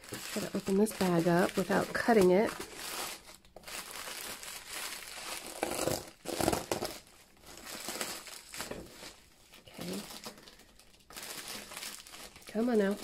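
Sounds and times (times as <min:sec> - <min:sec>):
scissors cutting plastic: 0:00.0 - 0:07.0
plastic bag crinkling: 0:00.0 - 0:13.0.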